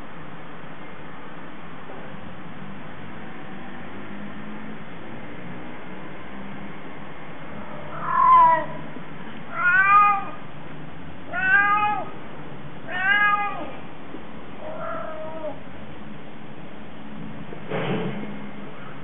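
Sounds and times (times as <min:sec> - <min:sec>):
cat yowling: 0:07.6 - 0:08.8, 0:09.5 - 0:10.4, 0:11.3 - 0:12.2, 0:12.8 - 0:13.8, 0:14.6 - 0:15.6.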